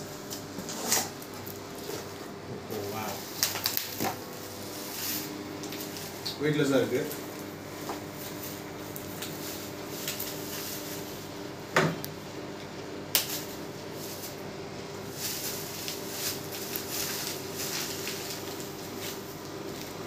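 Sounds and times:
steady low hum: 0.0s - 20.0s
bubble wrap rustling: 2.8s - 7.1s, 8.0s - 11.3s, 13.2s - 14.4s, 15.0s - 20.0s.

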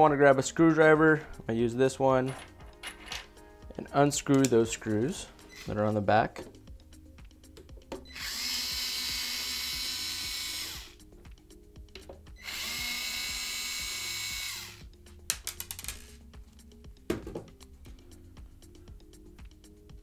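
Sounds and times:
electric screwdriver motor whining: 8.1s - 11.0s, 12.4s - 14.9s
knock: 17.1s - 17.5s.

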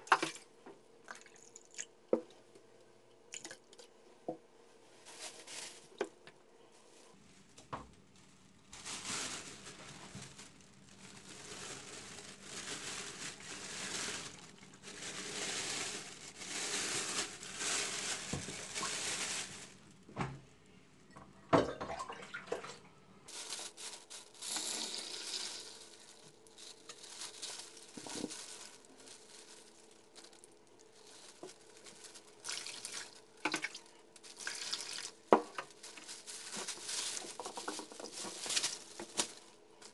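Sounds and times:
plastic bag rustling: 4.8s - 20.1s, 23.3s - 39.9s.

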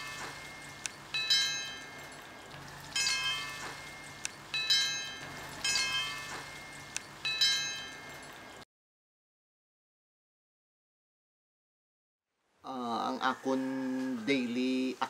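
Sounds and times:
metallic chimes ringing: 0.0s - 8.6s.

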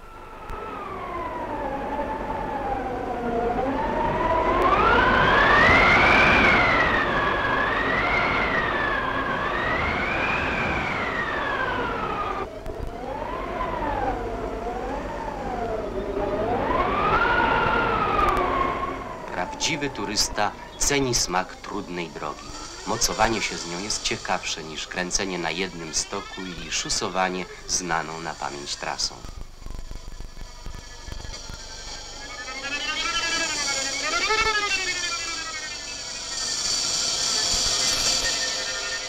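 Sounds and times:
howling gale: 0.0s - 39.0s.

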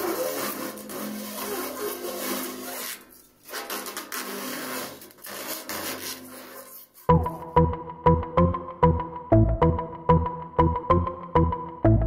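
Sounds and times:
plastic film peeling: 0.0s - 7.1s.

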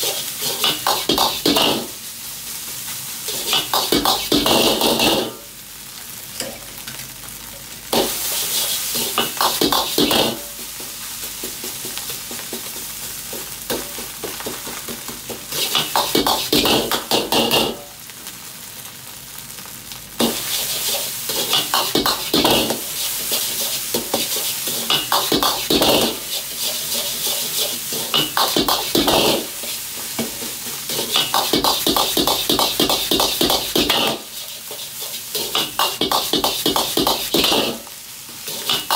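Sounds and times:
ladle scraping and clacking in wok: 0.0s - 2.0s, 3.3s - 5.3s, 15.3s - 17.8s, 20.2s - 38.9s
food sizzling: 0.0s - 38.9s.

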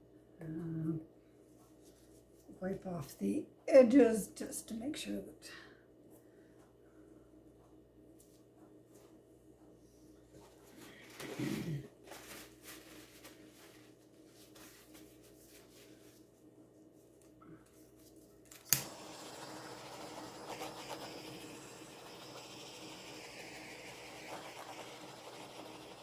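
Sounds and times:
butane torch clicking alight: 18.5s - 26.0s
torch flame hissing: 18.6s - 26.0s.

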